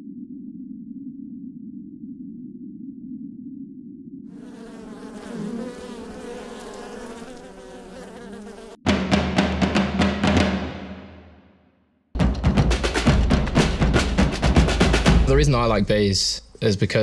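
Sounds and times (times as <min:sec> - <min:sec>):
low hum: 0:00.0 - 0:04.2
bees buzzing: 0:04.4 - 0:08.8
fast drum hits: 0:08.9 - 0:11.4, 0:12.2 - 0:16.2.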